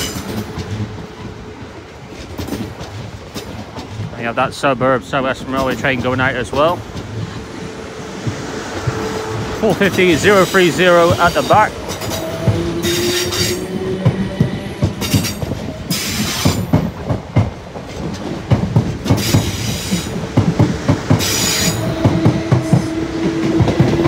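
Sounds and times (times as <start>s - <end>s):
train wheels clattering: 0.0s - 24.0s
train motor tone: 7.0s - 16.6s
high-pitched wheel squeals: 21.2s - 22.2s.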